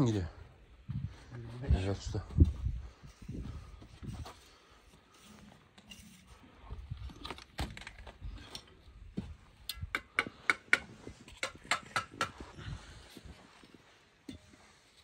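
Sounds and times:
trowel tapping bricks: 0:09.7 - 0:12.4.

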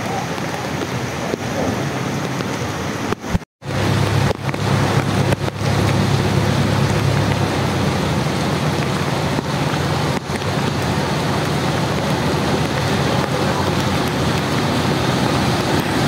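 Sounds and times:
heavy rain falling: 0:00.0 - 0:16.0
low vehicle engine rumble: 0:03.6 - 0:16.0.

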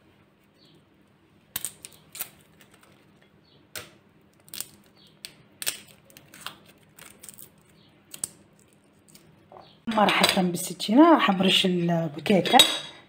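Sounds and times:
garlic skin crackling: 0:01.4 - 0:09.7.

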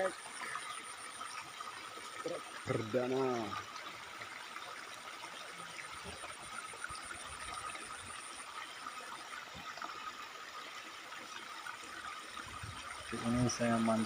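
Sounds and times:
stream flowing: 0:00.0 - 0:14.0.

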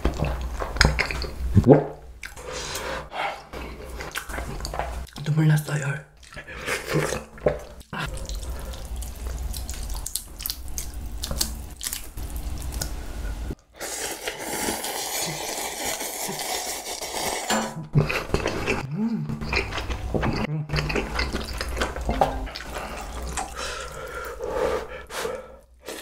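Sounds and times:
slurping noodles: 0:13.7 - 0:19.8.

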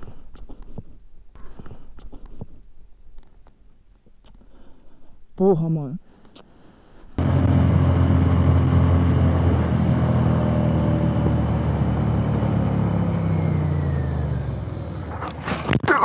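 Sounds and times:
motorcycle engine running: 0:07.2 - 0:15.8.

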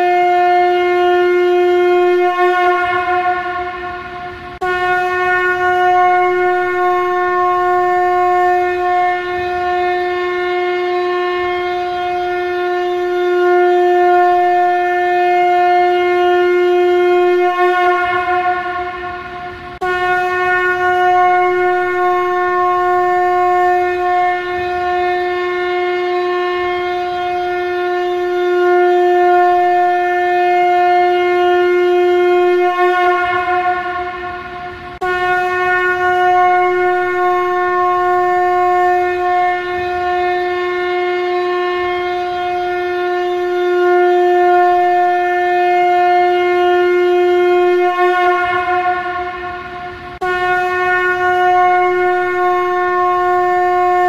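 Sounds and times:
conch shell blown: 0:00.0 - 0:54.0.

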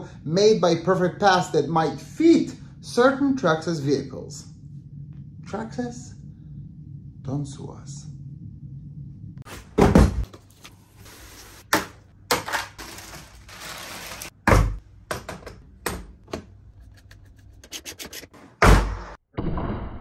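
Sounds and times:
plastic wrap crinkling: 0:12.4 - 0:14.4.

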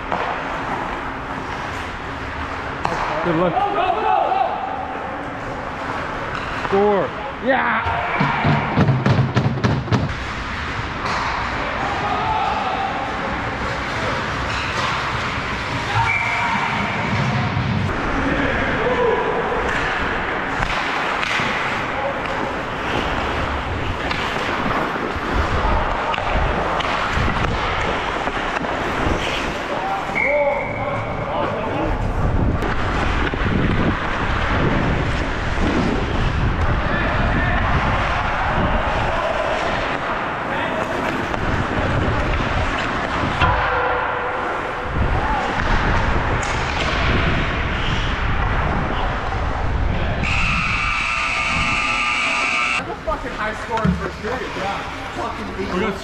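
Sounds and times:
steady rush of noise: 0:00.0 - 0:30.1, 0:30.7 - 0:56.0
skates scraping on ice: 0:19.7 - 0:30.2
wind rush on microphone: 0:31.8 - 0:39.4, 0:44.7 - 0:50.9.

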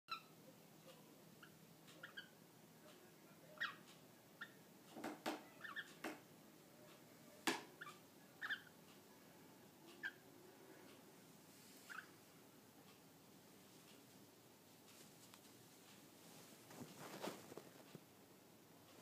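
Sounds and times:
cockatiel chirping: 0:00.1 - 0:00.4, 0:01.4 - 0:02.4, 0:03.6 - 0:03.8, 0:04.4 - 0:04.6, 0:05.5 - 0:06.0, 0:07.8 - 0:08.8, 0:10.0 - 0:10.2, 0:11.8 - 0:12.1.

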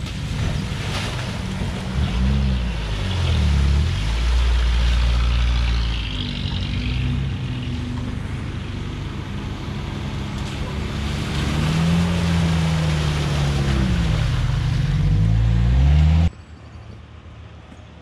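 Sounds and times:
water splashing from wheels: 0:00.0 - 0:16.2.

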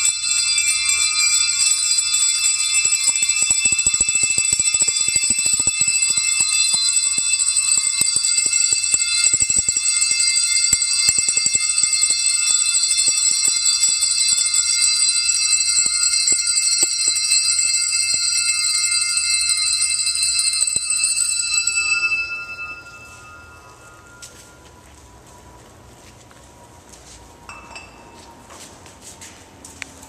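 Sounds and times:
handbells ringing: 0:00.0 - 0:25.2, 0:27.5 - 0:28.4.

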